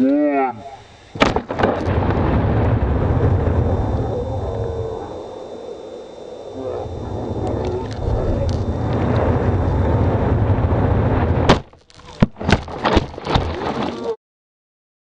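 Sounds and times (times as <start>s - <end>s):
wind rushing over microphone: 0.9s - 11.5s
knocks of rocket tumbling in grass: 1.2s - 2.3s, 11.2s - 14.0s
rocket hitting ground: 1.2s - 4.5s, 8.0s - 13.7s.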